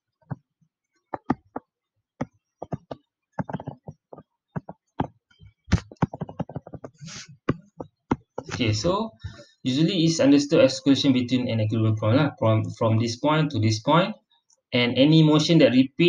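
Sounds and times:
stylus tapping on a screen: 1.1s - 8.6s
stylus scratchy rasp: 5.7s - 8.7s.

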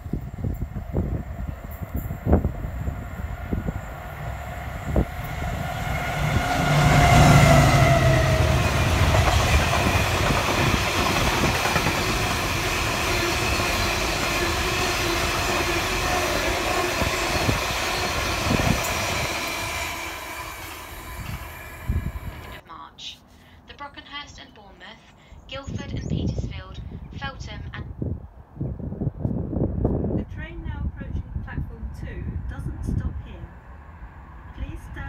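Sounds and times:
diesel locomotive passing: 0.0s - 22.6s
rumble of wagons: 8.2s - 14.2s.

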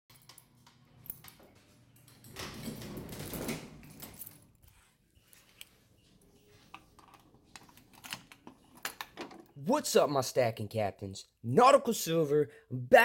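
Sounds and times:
glass door pushed open: 2.2s - 4.2s.

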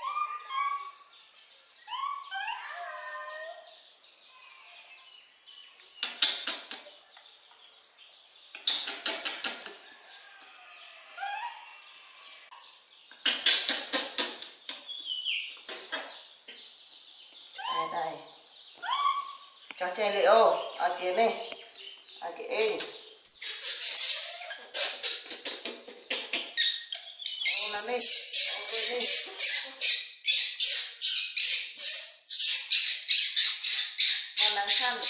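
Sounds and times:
young animals squeaking: 0.0s - 1.1s, 1.9s - 3.7s, 17.5s - 19.6s, 20.2s - 35.0s.

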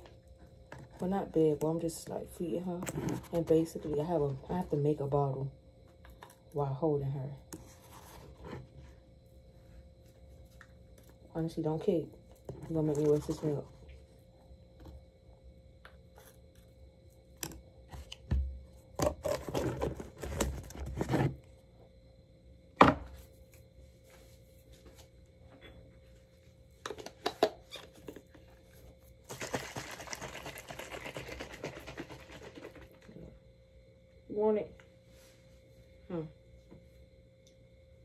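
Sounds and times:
bottle shaking rattle: 29.3s - 33.1s.

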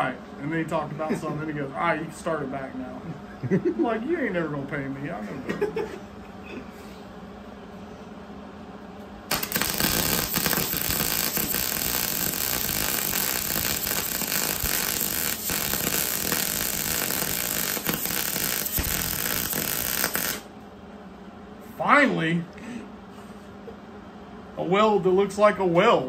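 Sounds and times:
welder arc crackling: 9.3s - 20.5s.

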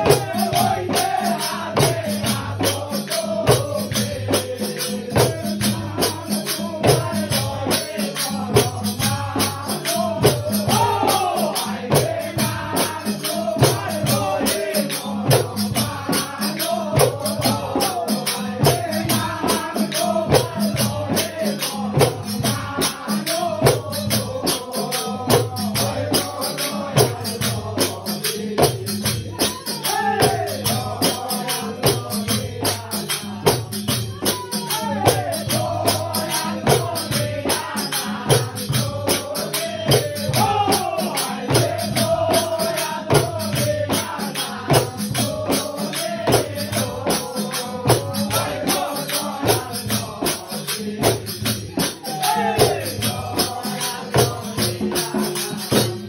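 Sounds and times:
men singing devotional song: 0.0s - 56.0s
rattling percussion: 0.0s - 56.0s.

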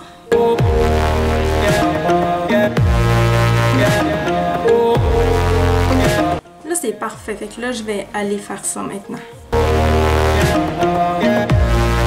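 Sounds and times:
electronic music with sliding bass: 0.3s - 6.4s, 9.6s - 12.0s.

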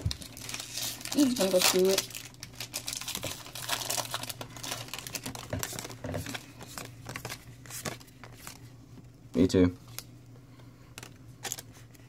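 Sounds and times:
foil wrapper crinkling: 0.0s - 8.6s.

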